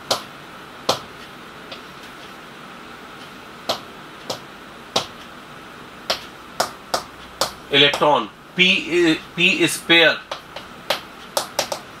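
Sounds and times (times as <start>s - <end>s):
faint steady hum: 0.0s - 12.0s
pen tapping on glass screen: 5.0s - 5.2s, 6.1s - 8.0s, 10.3s - 11.9s.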